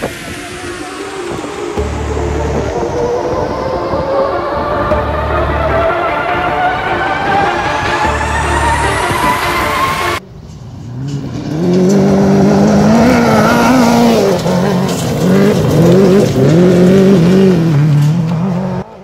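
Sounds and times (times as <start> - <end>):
motorcycle engine revving: 10.6 - 19.0.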